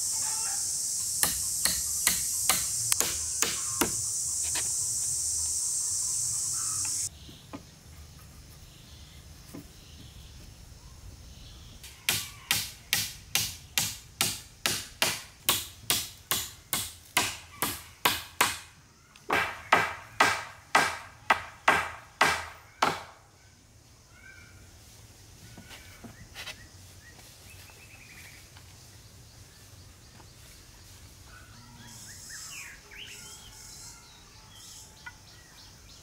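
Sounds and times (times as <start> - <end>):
high steady hiss: 0.0 - 21.1
wood being chopped: 1.2 - 4.0, 12.1 - 23.2.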